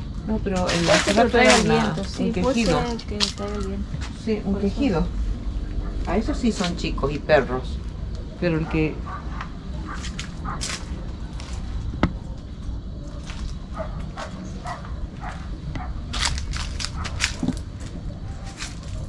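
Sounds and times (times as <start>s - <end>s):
low wind rumble: 1.4s - 19.0s
faint distant calls: 3.8s - 19.0s
footsteps on rough ground: 9.4s - 19.0s.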